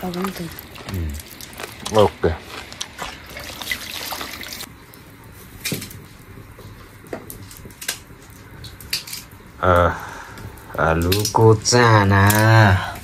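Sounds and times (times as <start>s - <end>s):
water pouring into a bowl: 0.0s - 4.7s.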